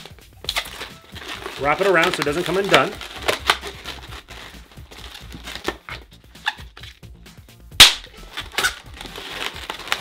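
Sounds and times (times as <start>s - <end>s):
balloon sharp snap: 7.7s - 8.8s.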